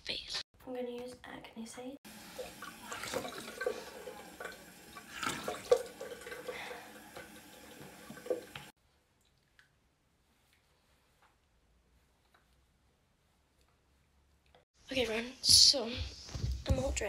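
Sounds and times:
water splashing on face: 2.1s - 8.7s
tap running into a sink: 2.4s - 8.7s.

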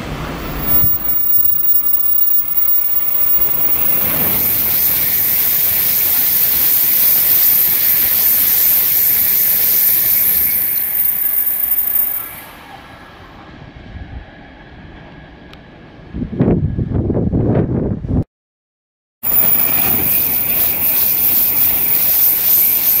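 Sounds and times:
bullet train passing: 0.0s - 17.4s, 19.2s - 23.0s.

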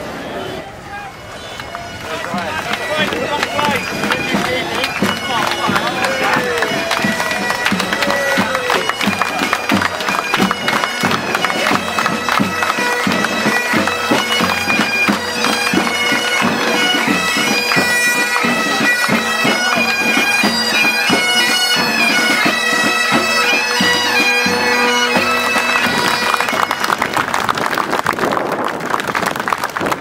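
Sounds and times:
bagpipes playing: 0.7s - 27.4s
marching drums beating: 2.3s - 26.8s.

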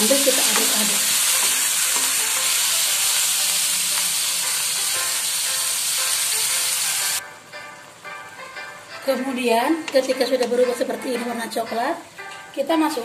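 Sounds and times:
meat sizzling in a wok: 0.0s - 8.8s.

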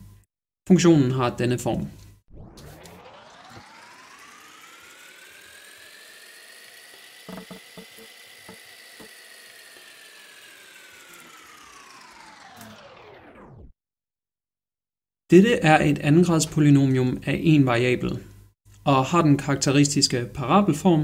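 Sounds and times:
whirring tone rising and falling: 2.1s - 13.8s.

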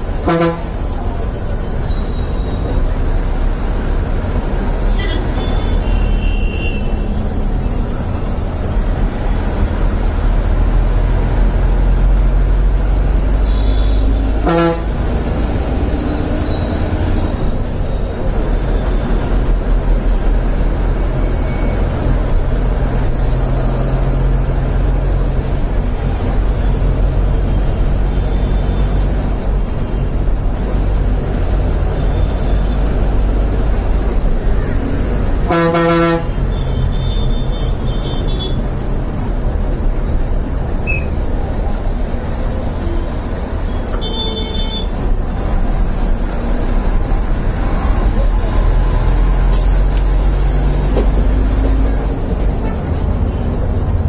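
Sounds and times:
bus engine droning: 0.0s - 54.0s
vehicle horn toots: 0.2s - 0.7s, 5.0s - 7.0s, 13.4s - 14.9s, 35.5s - 38.6s, 44.0s - 44.9s.

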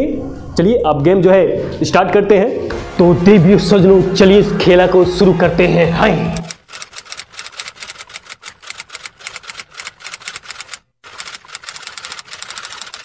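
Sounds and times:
fast keyboard typing: 6.4s - 13.0s.

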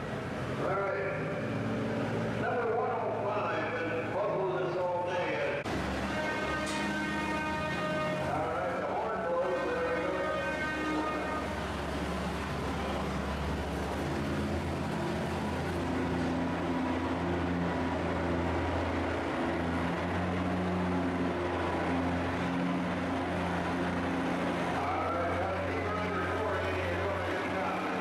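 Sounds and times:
tractor engine running: 10.4s - 28.0s.

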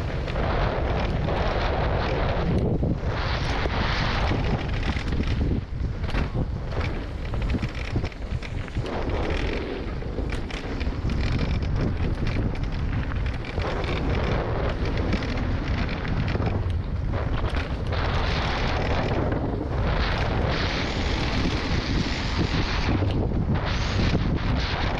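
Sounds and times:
bike rattling over rough ground: 0.0s - 24.9s
wind buffeting microphone: 0.0s - 24.9s.

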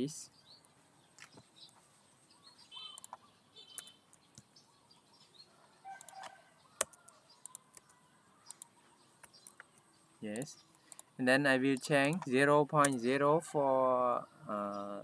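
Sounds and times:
faint bird calls: 0.6s - 11.2s
computer mouse clicks: 2.9s - 4.5s, 5.9s - 9.8s, 10.4s - 11.1s, 11.8s - 13.0s.

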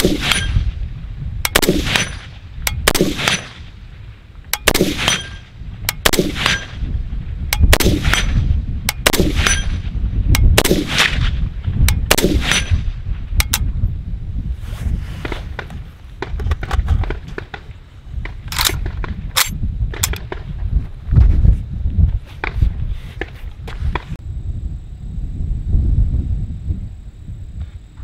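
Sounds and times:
rifle shots with echo: 0.0s - 0.7s, 1.5s - 3.7s, 4.6s - 6.9s, 7.6s - 9.9s, 10.5s - 11.4s, 12.0s - 12.9s.

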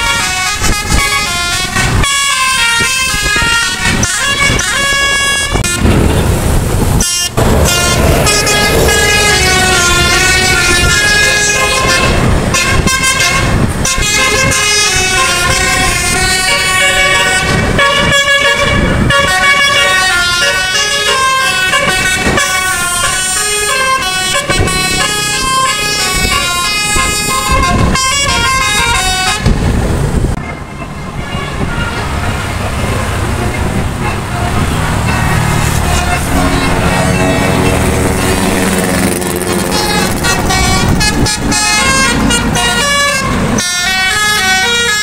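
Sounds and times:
musical air horn tune: 0.0s - 29.6s, 33.4s - 45.0s
bus engine and road noise: 0.0s - 45.0s.

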